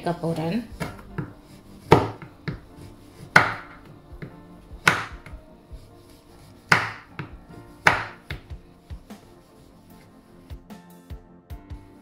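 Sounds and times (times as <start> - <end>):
background music: 0.0 - 12.0
knife knocking on cutting board: 0.8 - 5.4, 6.7 - 8.6.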